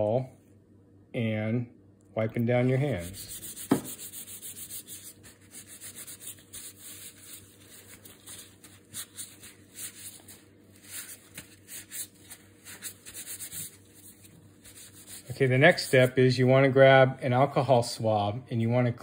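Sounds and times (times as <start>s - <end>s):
gloved hands rubbing together: 2.6s - 16.3s.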